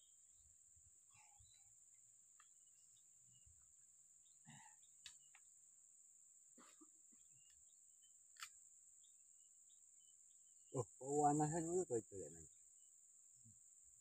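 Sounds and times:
faint bird chirps: 0:00.0 - 0:14.0
high-pitched insect drone: 0:07.4 - 0:14.0
faint sharp clicks: 0:08.3 - 0:08.6.

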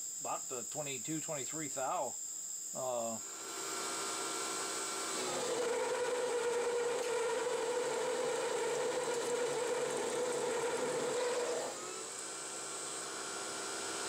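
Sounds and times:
metal lathe cutting with motor whine: 0:03.2 - 0:14.0.

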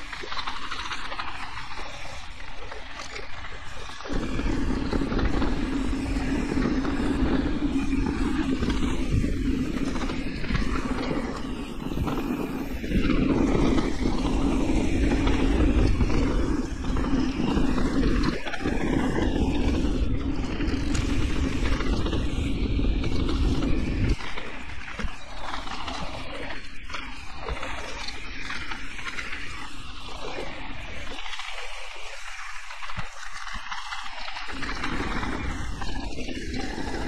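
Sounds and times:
wind on microphone: 0:00.0 - 0:37.0
tyres rumbling over dirt: 0:04.1 - 0:26.3.

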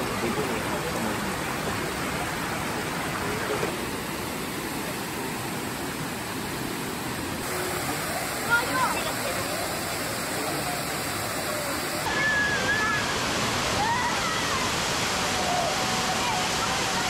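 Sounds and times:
waterfall and stream rushing: 0:00.0 - 0:17.0.

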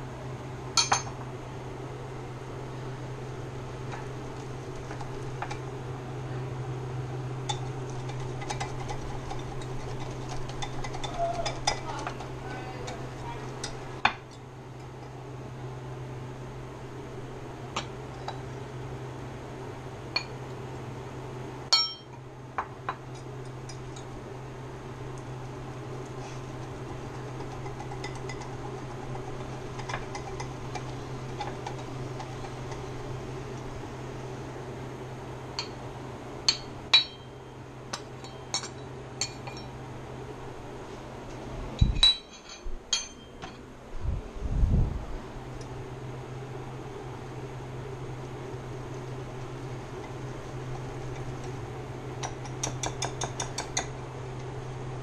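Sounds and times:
steady low hum: 0:00.0 - 0:55.0
utensils clinking against dishes: 0:07.4 - 0:15.1, 0:21.7 - 0:22.2, 0:38.0 - 0:39.8, 0:41.8 - 0:43.6.

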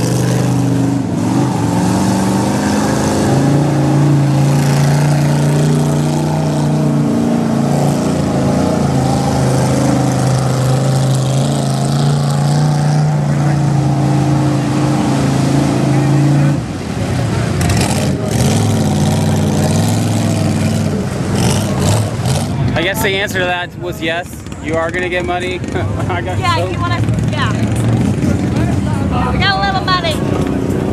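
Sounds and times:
buggy engine revving hard: 0:00.0 - 0:23.2.

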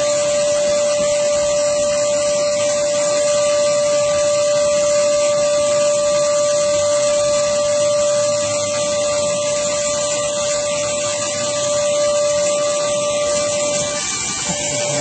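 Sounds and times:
shop vacuum running: 0:00.0 - 0:15.0.

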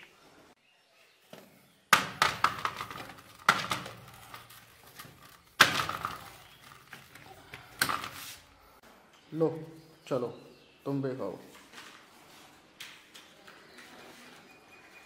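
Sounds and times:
cucumbers clattering in plastic crate: 0:02.0 - 0:08.4.

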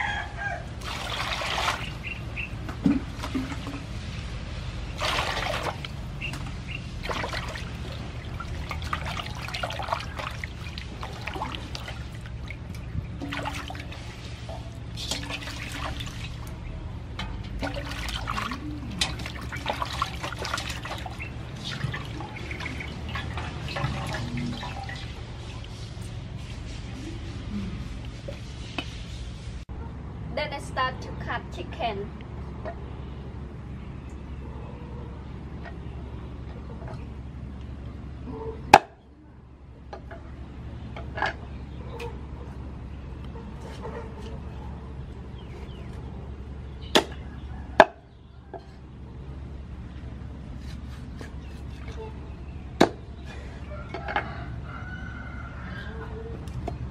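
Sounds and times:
water splashing in metal basin: 0:00.8 - 0:26.0
water trickling: 0:04.9 - 0:16.7, 0:17.3 - 0:26.0.

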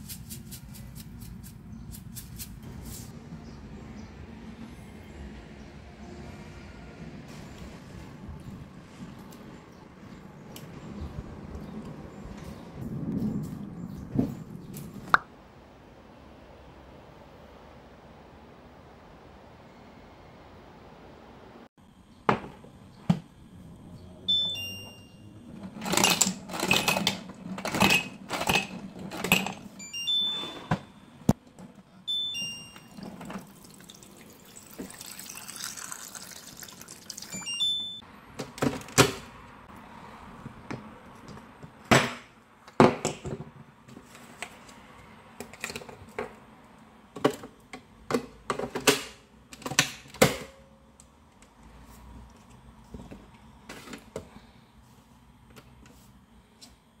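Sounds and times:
water dispenser beeping: 0:24.3 - 0:25.6, 0:29.8 - 0:31.0, 0:32.1 - 0:38.0
water running into mug: 0:33.4 - 0:37.5.

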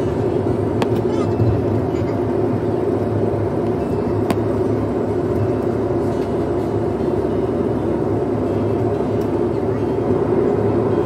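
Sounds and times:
jet engine and cabin noise: 0:00.0 - 0:11.0.

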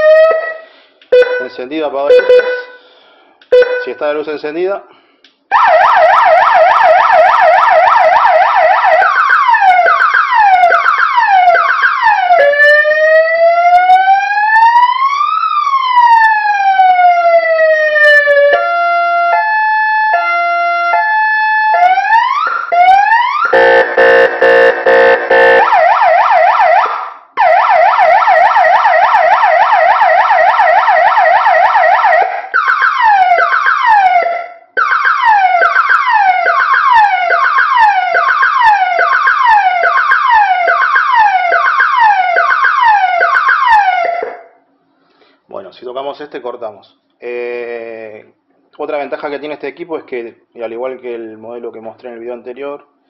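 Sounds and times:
electronic siren tones: 0:05.6 - 0:44.5.

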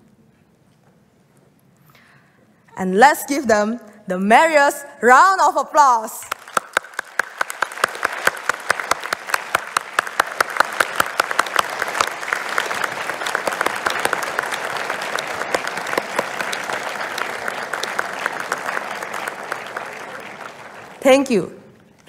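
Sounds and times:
audience applauding: 0:06.3 - 0:21.3.

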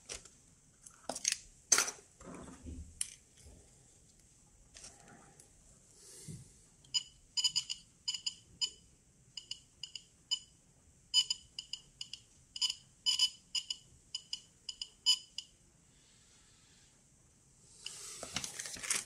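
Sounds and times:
radiation counter beeping: 0:11.2 - 0:15.5.

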